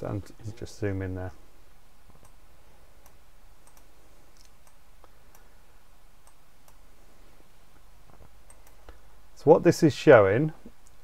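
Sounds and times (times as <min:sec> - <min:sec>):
faint low hum: 0:00.0 - 0:11.0
computer mouse clicking: 0:02.1 - 0:02.4, 0:03.0 - 0:05.5, 0:06.2 - 0:06.8, 0:08.1 - 0:09.0.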